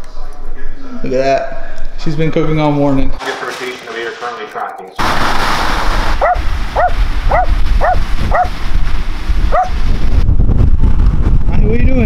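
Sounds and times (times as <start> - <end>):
splashing floodwater: 5.0 - 9.7
wind rushing: 5.0 - 12.0
dog barking: 6.2 - 8.6, 9.5 - 9.8.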